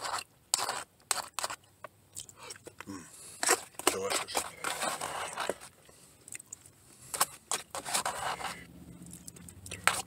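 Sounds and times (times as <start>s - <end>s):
chewing and mouth noises: 5.2s - 7.4s, 8.9s - 10.0s.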